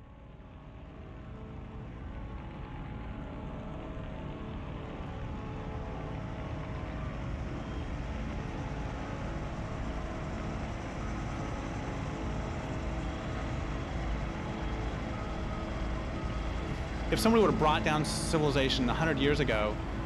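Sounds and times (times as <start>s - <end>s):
diesel machinery engines rumbling: 12.6s - 20.0s.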